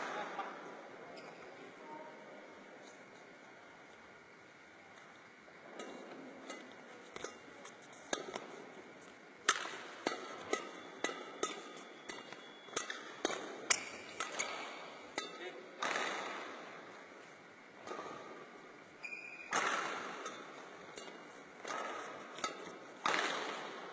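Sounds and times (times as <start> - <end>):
racket hitting shuttlecock: 5.7 - 23.9.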